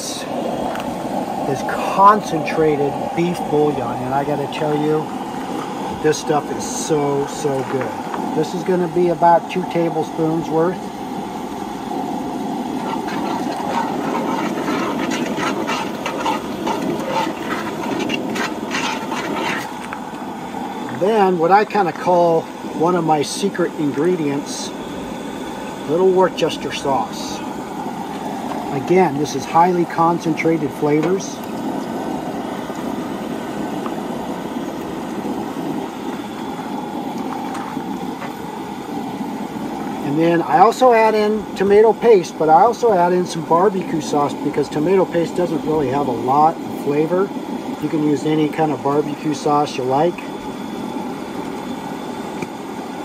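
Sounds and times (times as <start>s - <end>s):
liquid simmering: 0.0s - 40.0s
gas stove burner rushing: 0.0s - 53.0s
metal spoon scraping iron pot: 12.8s - 19.8s.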